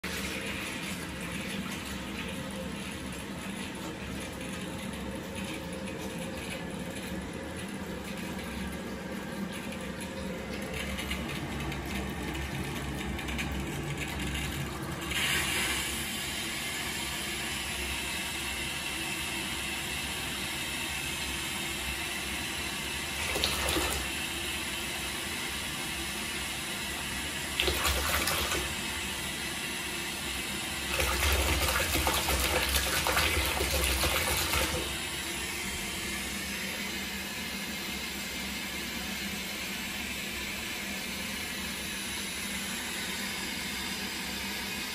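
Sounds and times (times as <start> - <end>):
bathwater splashing: 23.2 - 24.2, 27.6 - 28.9, 30.9 - 35.0.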